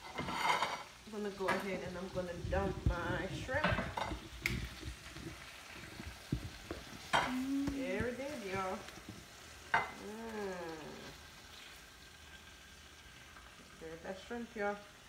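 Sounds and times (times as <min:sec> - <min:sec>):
tongs scraping grill pan: 0:00.0 - 0:10.1.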